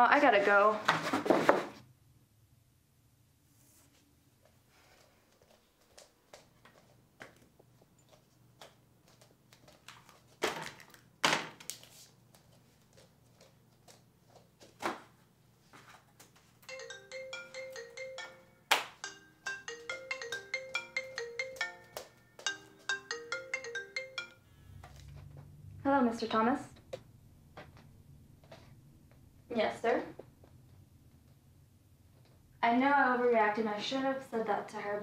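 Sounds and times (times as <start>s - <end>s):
mobile phone ringtone: 16.7s - 24.9s.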